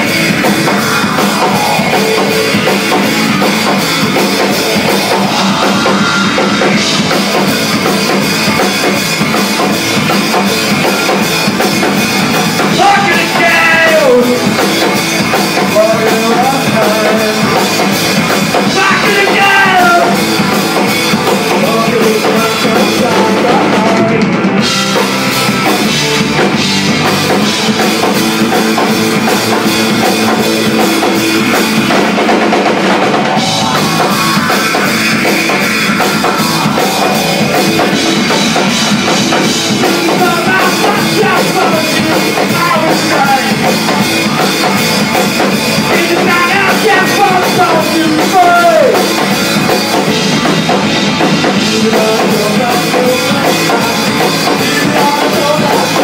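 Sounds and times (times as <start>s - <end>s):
singer's voice: 0.0s - 9.0s, 12.6s - 24.6s, 33.4s - 44.4s, 45.8s - 49.4s, 51.2s - 56.0s
drum kit: 0.0s - 56.0s
electric guitar: 0.0s - 56.0s.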